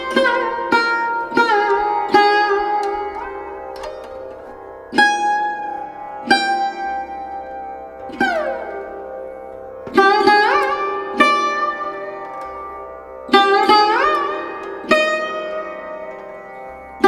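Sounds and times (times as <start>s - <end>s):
plucked string instrument notes: 0.0s - 17.0s.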